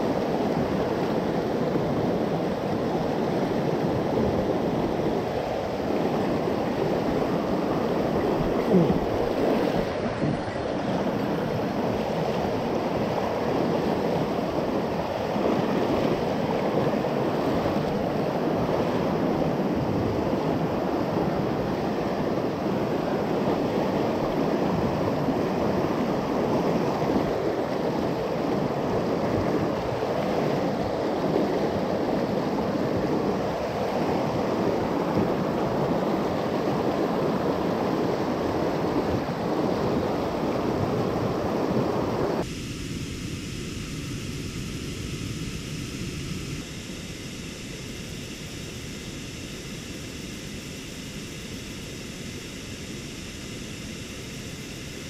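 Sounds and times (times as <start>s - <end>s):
whitewater rushing over rocks: 0.0s - 42.5s.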